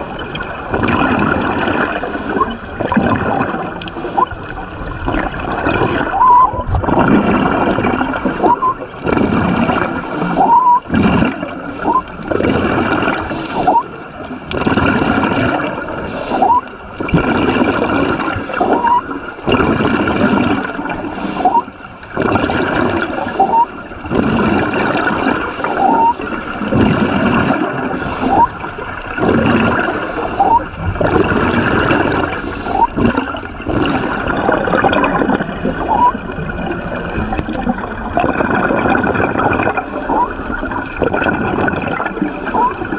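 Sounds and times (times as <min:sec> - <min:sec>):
bubbling gurgles of exhaled air: 0:00.0 - 0:42.9
diver breathing through regulator: 0:01.9 - 0:02.6, 0:21.1 - 0:21.8, 0:25.4 - 0:26.2, 0:27.8 - 0:28.6, 0:29.8 - 0:33.1, 0:35.3 - 0:37.4, 0:39.7 - 0:40.6.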